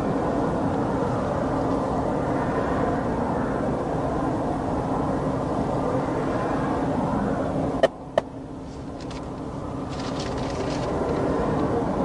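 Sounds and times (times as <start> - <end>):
highway traffic: 0.0 - 12.0.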